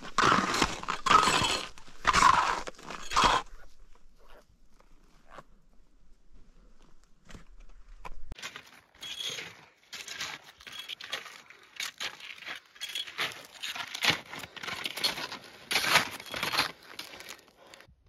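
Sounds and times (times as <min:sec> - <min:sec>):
skis scraping icy snow: 0:00.0 - 0:03.6.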